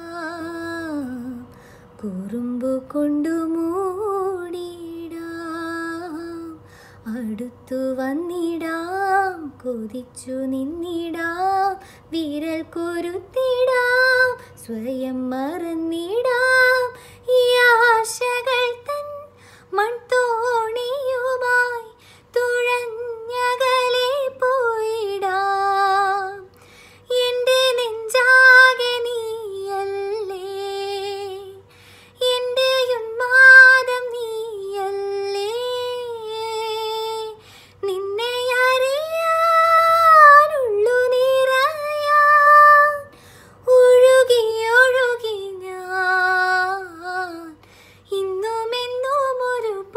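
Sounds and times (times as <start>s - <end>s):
singer breathing: 1.5s - 2.0s, 6.6s - 7.1s, 17.0s - 17.3s, 19.3s - 19.7s, 22.0s - 22.3s, 26.5s - 27.1s, 31.6s - 32.2s, 37.4s - 37.8s, 43.1s - 43.6s, 47.6s - 48.1s.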